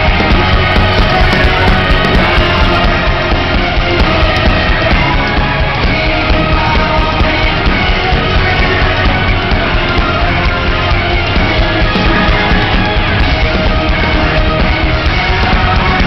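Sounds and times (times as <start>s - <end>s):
loud rock music: 0.0s - 16.0s.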